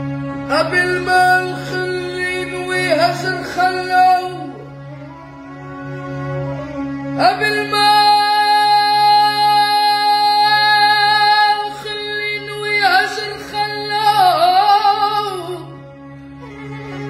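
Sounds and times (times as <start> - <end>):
violin: 0.0 - 17.0
boy singing: 0.5 - 4.6, 7.2 - 15.7.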